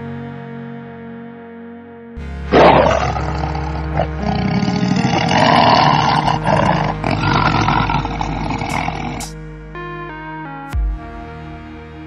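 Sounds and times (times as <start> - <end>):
lion roaring: 2.5 - 9.3.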